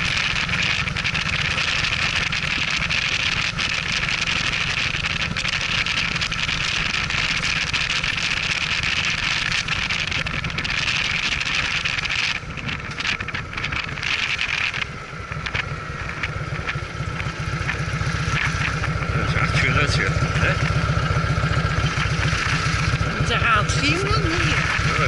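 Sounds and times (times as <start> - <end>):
motorcycle engine running: 0.0 - 25.0
wind on microphone: 5.0 - 19.1.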